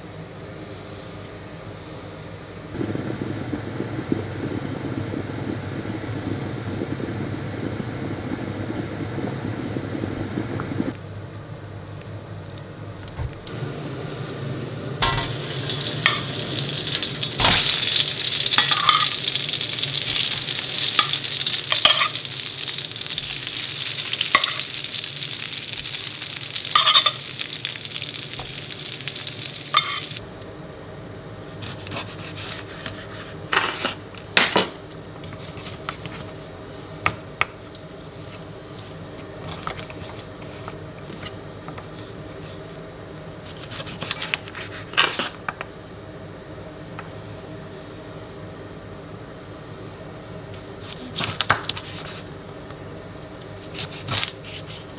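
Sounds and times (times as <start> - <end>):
potatoes sizzling in a roasting tin: 15.0 - 30.2.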